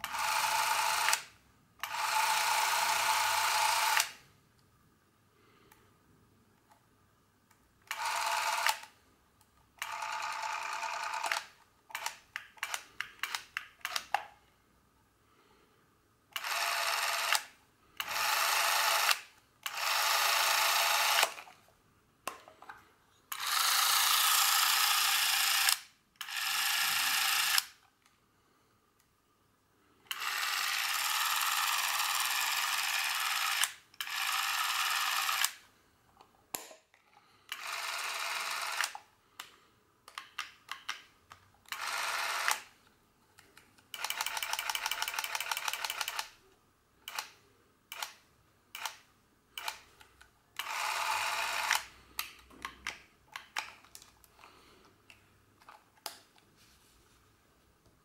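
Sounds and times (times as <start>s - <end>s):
camera motor whirring: 23.3s - 27.7s, 30.1s - 35.6s, 50.6s - 51.9s.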